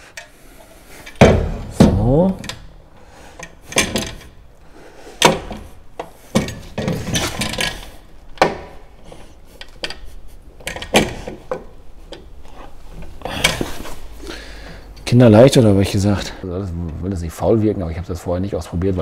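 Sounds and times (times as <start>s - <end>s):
metal lock knocks and clicks: 1.1s - 2.8s, 3.4s - 4.4s, 5.2s - 9.0s, 9.6s - 12.3s.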